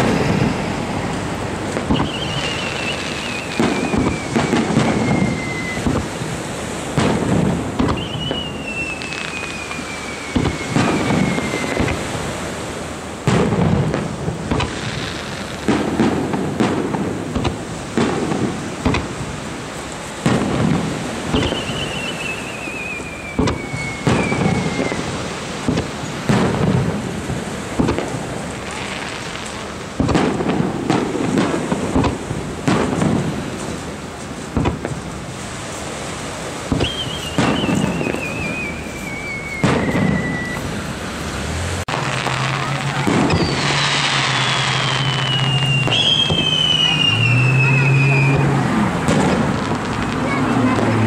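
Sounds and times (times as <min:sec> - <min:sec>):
high firework whistle: 0:00.0 - 0:12.6, 0:20.2 - 0:26.8, 0:35.5 - 0:41.0, 0:41.9 - 0:51.0
firework shells booming: 0:00.0 - 0:40.9, 0:41.8 - 0:51.0
firework crackles: 0:00.0 - 0:51.0.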